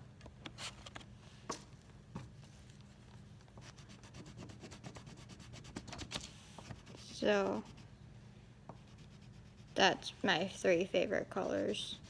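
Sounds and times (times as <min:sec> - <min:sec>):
colouring strokes on paper: 0:03.6 - 0:07.9, 0:08.7 - 0:12.0.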